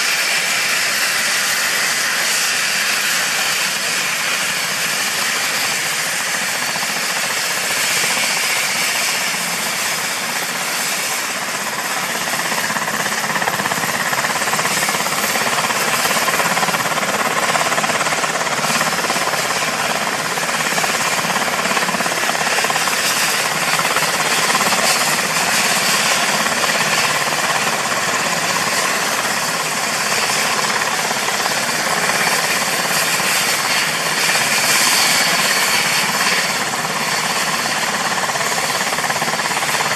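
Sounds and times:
helicopter turbine whine: 0.0s - 39.9s.

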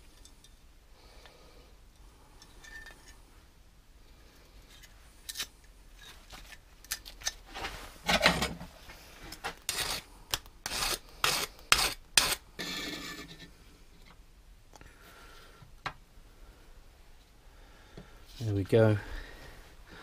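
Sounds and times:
file strokes on metal edge: 9.7s - 10.0s, 10.6s - 13.5s.

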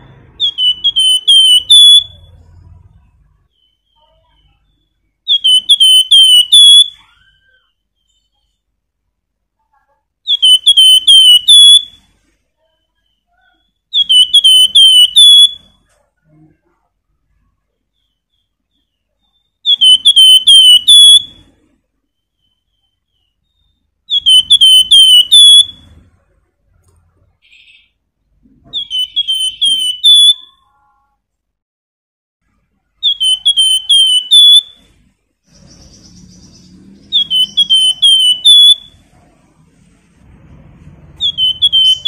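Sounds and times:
bird singing whistled phrases: 0.4s - 2.4s, 3.5s - 8.6s, 10.3s - 12.0s, 12.8s - 15.7s, 18.0s - 21.4s, 22.2s - 25.8s, 28.7s - 30.7s, 33.0s - 34.8s, 35.5s - 39.0s, 41.2s - 42.0s.

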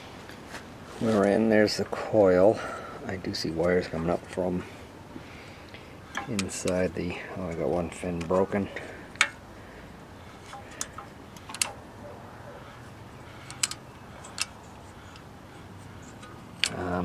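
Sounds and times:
socket wrench clicking on metal: 10.5s - 11.8s, 13.4s - 15.3s.

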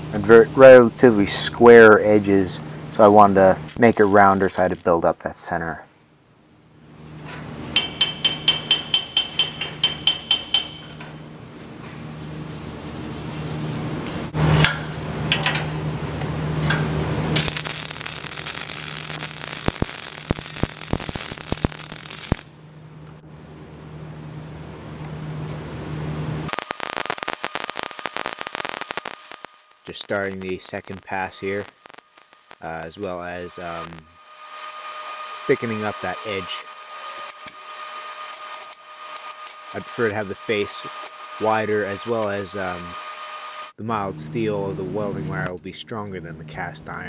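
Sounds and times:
welding crackling hiss: 0.0s - 5.7s, 17.3s - 22.6s, 26.5s - 43.8s
steady low hum: 0.0s - 47.0s.

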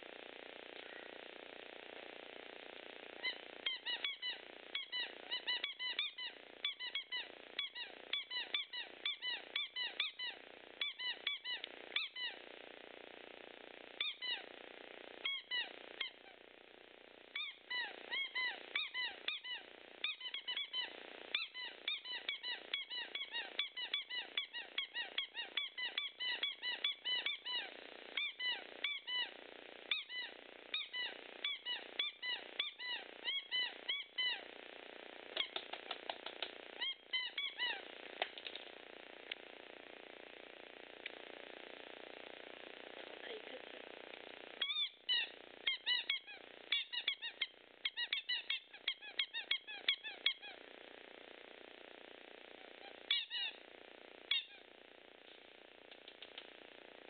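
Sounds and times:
squeaky ball toy squeaking: 29.9s - 34.4s, 35.4s - 35.7s, 36.8s - 37.8s, 44.6s - 50.5s.

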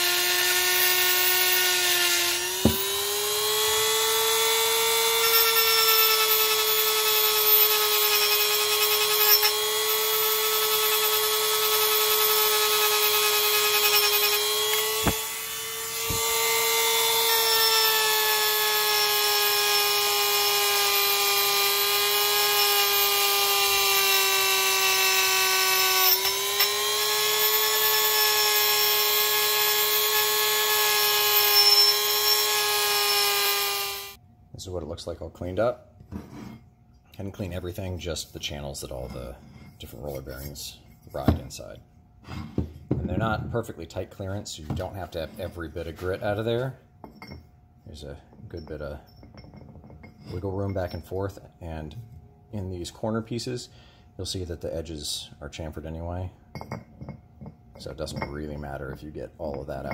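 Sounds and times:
rotary tool whine: 0.0s - 34.2s.

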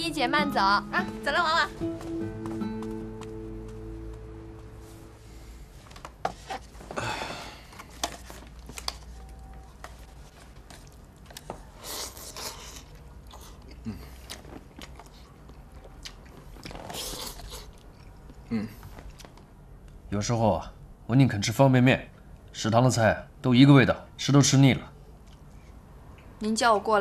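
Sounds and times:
chewing: 10.7s - 19.3s.

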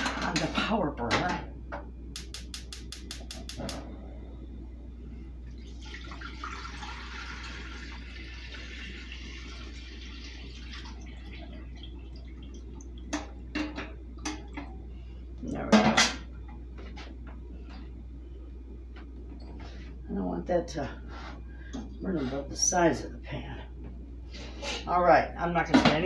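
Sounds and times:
gas stove igniter ticking: 2.1s - 3.8s
water pouring into a pot: 5.5s - 13.3s.

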